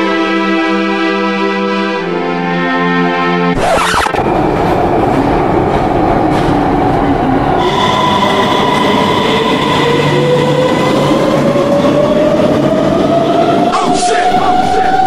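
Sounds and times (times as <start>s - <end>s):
rising whine: 3.5s - 14.6s
train rumbling on rails: 4.2s - 15.0s.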